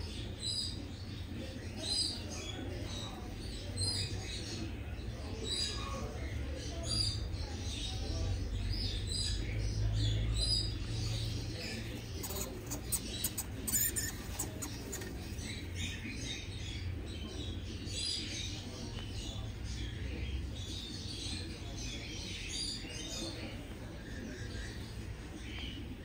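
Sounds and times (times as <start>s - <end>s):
hamsters scrabbling in bedding: 11.0s - 15.9s
hamster short high chirps: 12.2s - 15.1s.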